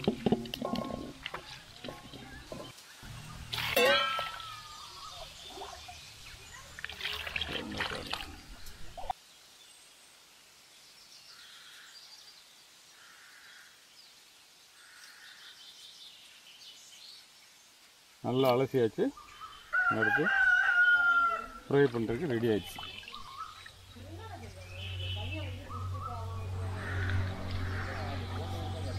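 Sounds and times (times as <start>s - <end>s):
wet splashing and squelching: 0.0s - 9.2s, 21.7s - 24.0s
faint bird calls: 19.1s - 28.9s.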